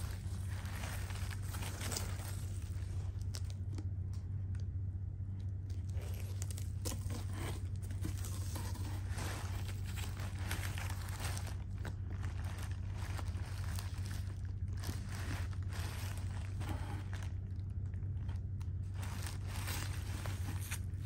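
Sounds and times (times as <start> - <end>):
paper and foam wrap rustling: 0.0 - 3.8, 5.6 - 21.0
steady low hum: 0.0 - 21.0.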